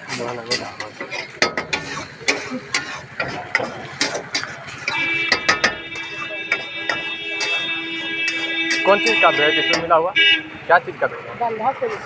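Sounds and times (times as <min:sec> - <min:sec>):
metal spatula scraping a wok: 0:00.0 - 0:10.0.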